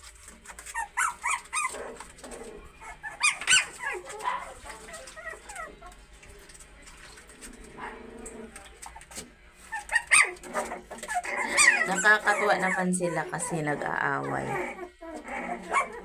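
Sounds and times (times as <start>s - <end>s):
puppies whimpering and yelping: 0.0s - 16.0s.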